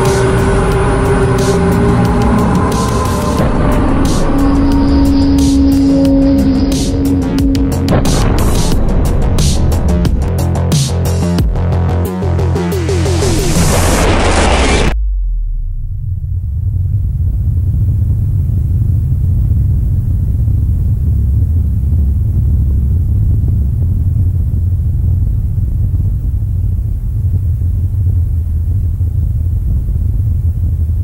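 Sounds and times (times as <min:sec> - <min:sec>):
deep bass rumbling: 0:00.0 - 0:31.0.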